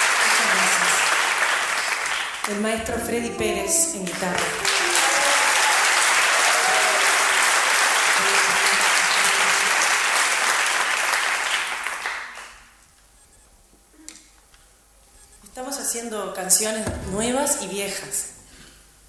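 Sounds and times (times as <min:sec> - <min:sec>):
audience applauding: 0:00.0 - 0:12.7.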